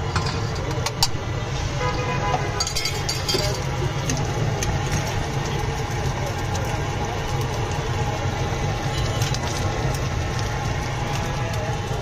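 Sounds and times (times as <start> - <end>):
low traffic rumble: 0.0 - 12.0
cooking utensils clinking: 2.6 - 3.8.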